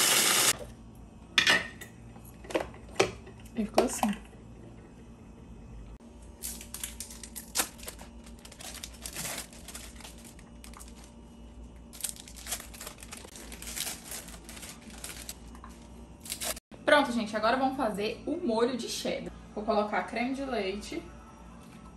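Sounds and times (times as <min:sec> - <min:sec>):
plastic wrappers crinkling: 0:06.4 - 0:11.2, 0:11.9 - 0:16.6.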